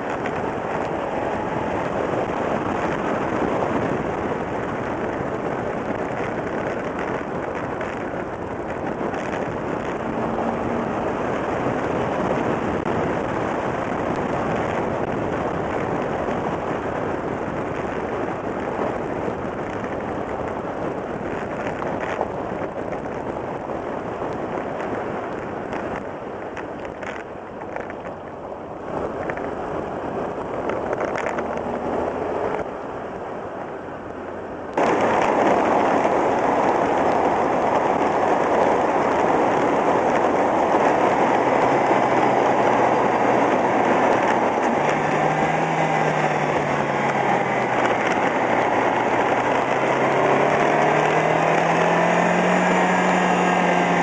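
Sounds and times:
tyre and road noise: 0:00.0 - 0:54.0
wind rushing over microphone: 0:00.0 - 0:54.0
faint crackles: 0:24.3 - 0:29.6, 0:30.5 - 0:32.7.

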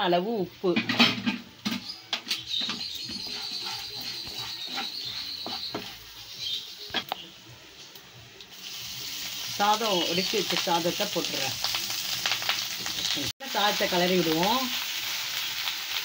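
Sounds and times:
spatula scraping pan: 0:02.4 - 0:06.3.

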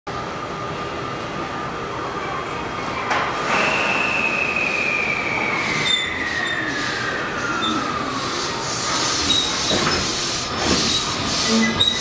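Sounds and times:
electric train running rumble: 0:03.3 - 0:12.0.

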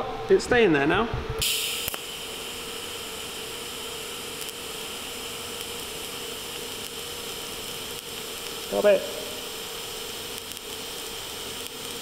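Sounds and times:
welding arc hissing: 0:01.4 - 0:12.0.

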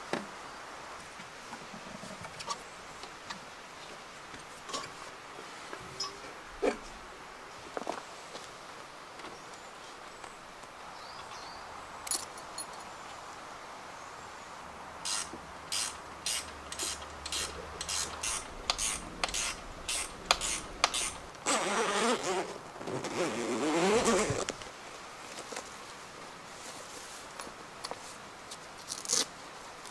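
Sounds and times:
strap rasping pull: 0:15.1 - 0:24.6.

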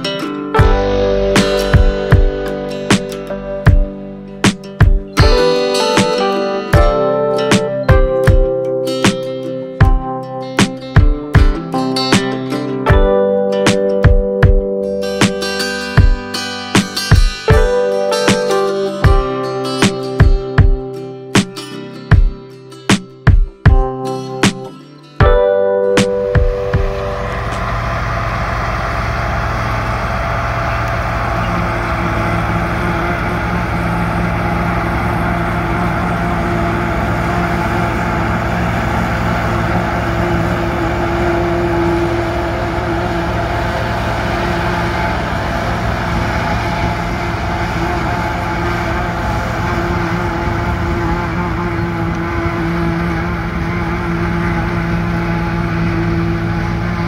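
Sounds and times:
forage chopper running: 0:00.0 - 0:08.4, 0:26.0 - 0:57.0
tractor diesel engine under load: 0:00.0 - 0:09.0, 0:25.3 - 0:57.0.

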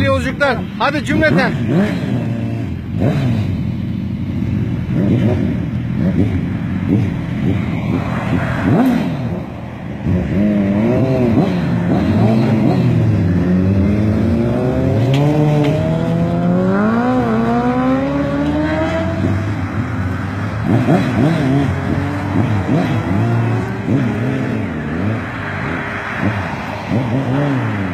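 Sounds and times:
motorcycles revving and accelerating: 0:00.0 - 0:27.9.

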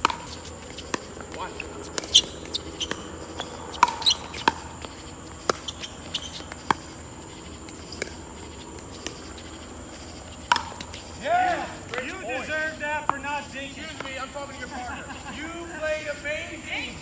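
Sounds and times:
ball bouncing on hard court: 0:00.0 - 0:09.7, 0:10.3 - 0:11.1
high insect trill: 0:00.0 - 0:17.0.

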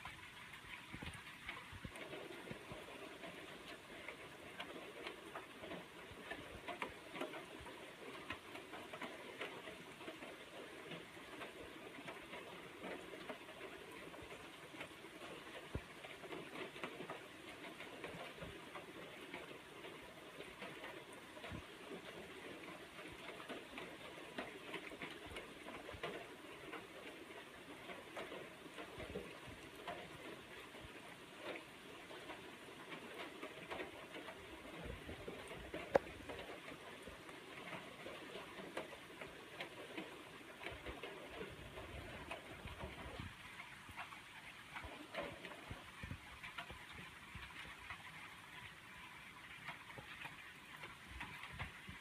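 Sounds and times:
steady rain falling: 0:00.0 - 0:52.0
drops dripping and tapping: 0:23.1 - 0:52.0.

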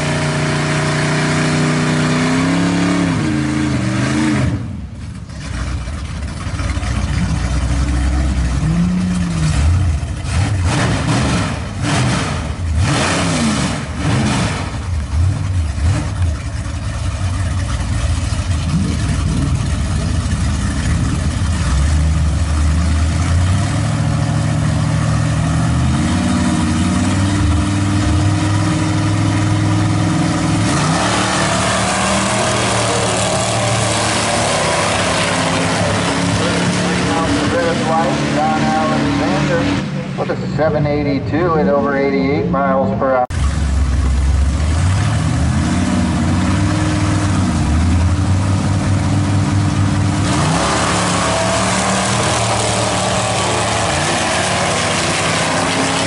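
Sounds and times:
pickup engine revving: 0:00.0 - 0:56.0
second pickup engine idling: 0:04.8 - 0:10.6, 0:14.8 - 0:25.6, 0:43.0 - 0:45.2.

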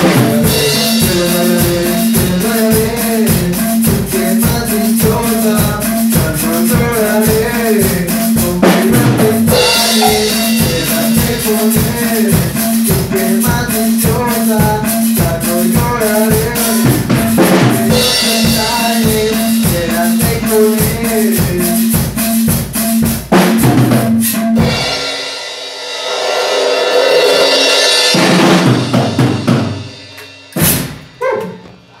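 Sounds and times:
drum kit beat: 0:00.0 - 0:32.0
cymbals crashing: 0:09.4 - 0:13.1, 0:16.9 - 0:20.0, 0:21.6 - 0:31.3
electronic keyboard melody: 0:09.5 - 0:12.2.

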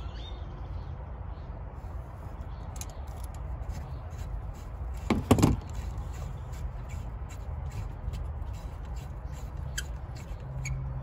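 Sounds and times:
metal clicks and scrapes: 0:02.7 - 0:10.8.

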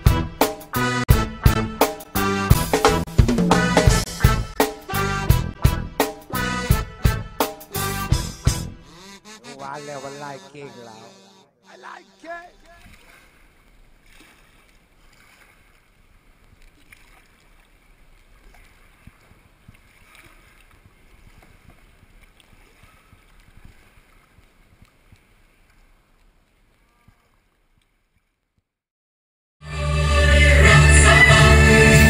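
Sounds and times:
paddles splashing in water: 0:09.4 - 0:28.5.

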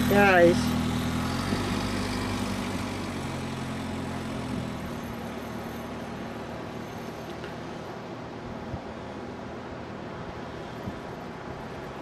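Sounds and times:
buggy engine driving away: 0:00.0 - 0:07.9
wind hiss: 0:00.0 - 0:12.0.

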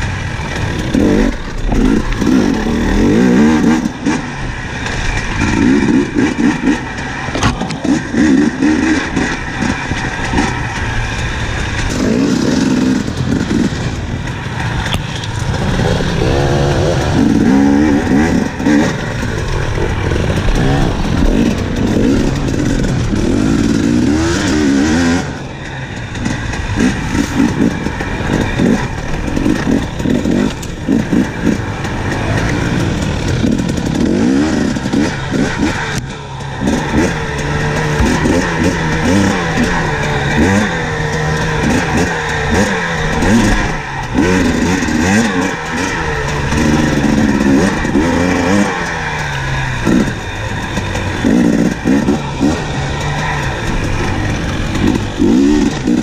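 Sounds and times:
motorbike knocking and rattling: 0:00.0 - 0:56.0
two-stroke engine revving: 0:00.0 - 0:56.0.

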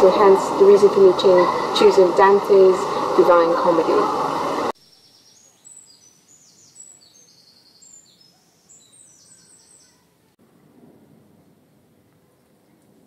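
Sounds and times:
songbirds chirping and trilling: 0:00.0 - 0:10.3.

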